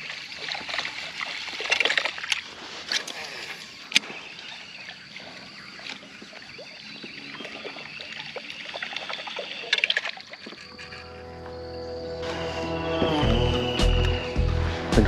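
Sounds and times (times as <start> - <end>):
water trickling: 0.0 - 11.3
music with held notes: 11.1 - 15.0.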